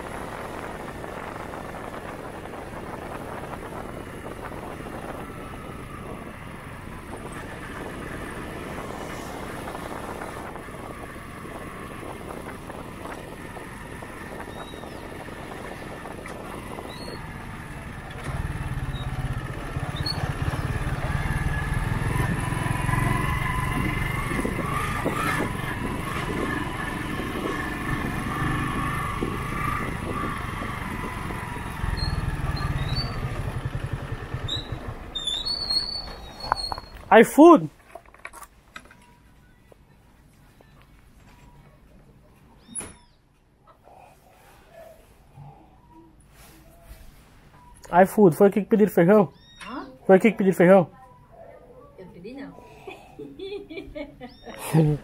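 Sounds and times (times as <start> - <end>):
motorcycle engine running: 0.1 - 37.0.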